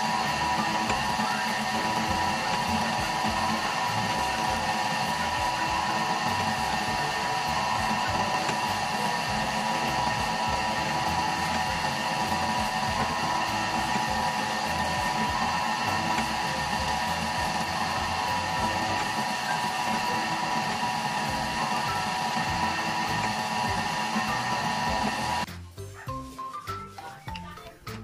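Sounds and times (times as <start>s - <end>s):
dough roller motor humming: 0.0s - 25.5s.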